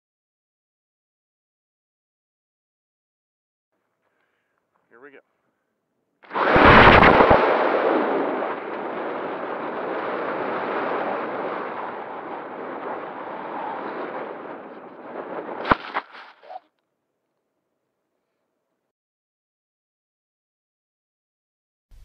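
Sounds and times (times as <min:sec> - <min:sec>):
glider hitting the ground: 0:06.3 - 0:07.6, 0:15.4 - 0:16.6
wind rushing over camera: 0:06.3 - 0:16.6.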